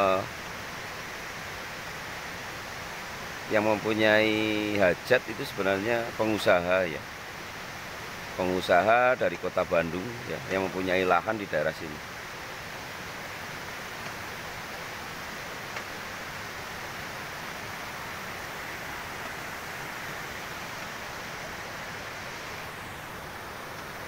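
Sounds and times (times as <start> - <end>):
flowing water rushing: 0.0 - 24.0.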